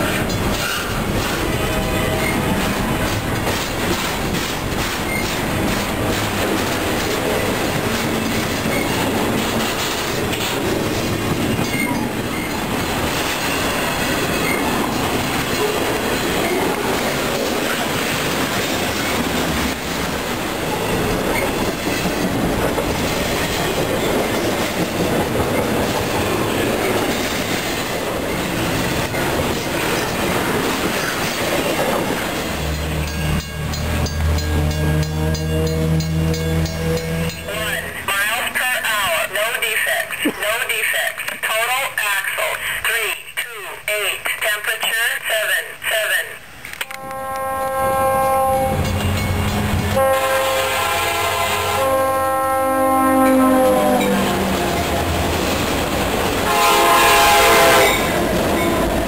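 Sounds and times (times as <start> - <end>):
wheels clacking over rail joints: 0.0 - 37.8
train wheels rumbling on rails: 0.0 - 38.1, 46.5 - 59.0.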